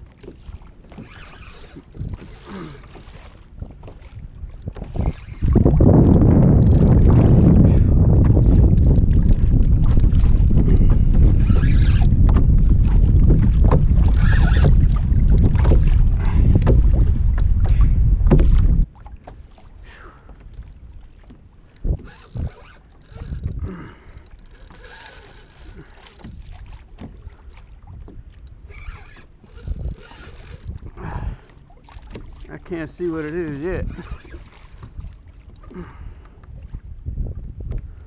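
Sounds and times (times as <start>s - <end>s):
water against kayak hull: 0.0s - 38.0s
wind buffeting microphone: 1.7s - 19.0s, 21.8s - 38.0s
knocks on kayak: 16.6s - 17.0s, 18.2s - 18.8s.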